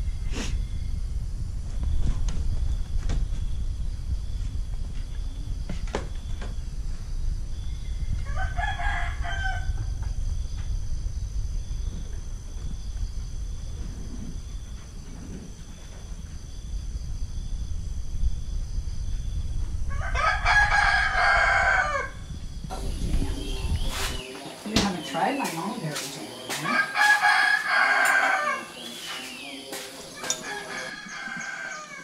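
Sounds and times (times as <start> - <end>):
low rumble: 0.0 - 24.2
rooster crowing: 8.2 - 10.0, 19.9 - 22.2, 26.3 - 32.0.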